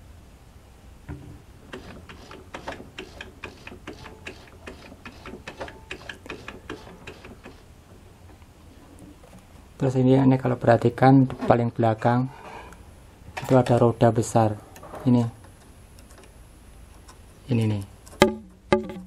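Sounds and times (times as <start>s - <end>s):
sewing machine mechanism clicking: 1.7s - 7.7s.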